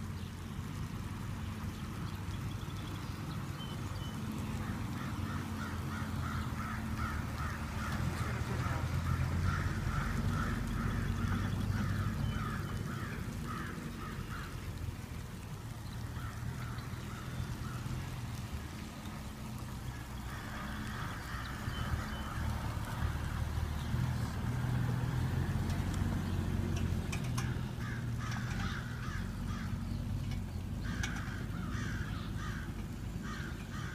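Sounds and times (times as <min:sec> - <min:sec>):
car engine running: 0:00.0 - 0:33.9
crows cawing: 0:04.6 - 0:14.8, 0:16.0 - 0:18.2, 0:19.8 - 0:23.4, 0:27.2 - 0:30.0, 0:30.8 - 0:33.9.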